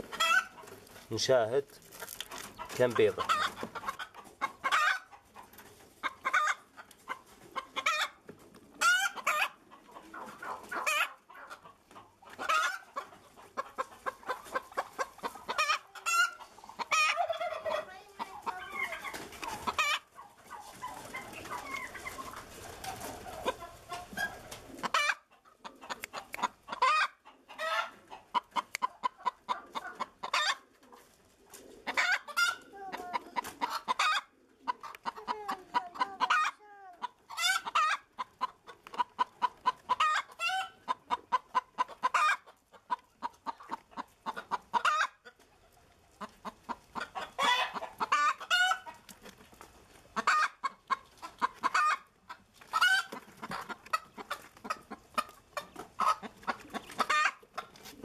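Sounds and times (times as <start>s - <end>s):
poultry clucking and calling: 0.0s - 58.0s.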